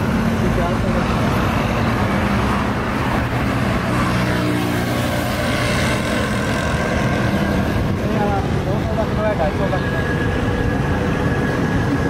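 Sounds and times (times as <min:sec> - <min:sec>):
passing road traffic: 0:00.0 - 0:12.0
vehicle passing close: 0:00.0 - 0:12.0.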